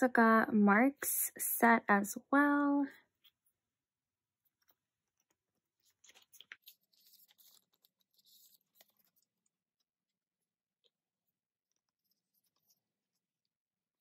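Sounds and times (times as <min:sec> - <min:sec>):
plastic card sleeves rustling: 0:04.5 - 0:09.6.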